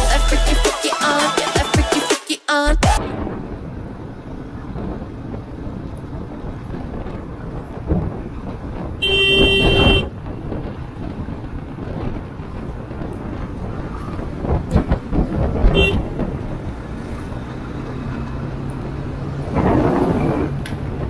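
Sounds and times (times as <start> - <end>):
road and wind noise: 3.0 - 21.0
vehicle horn honking: 9.0 - 10.1, 15.7 - 16.2.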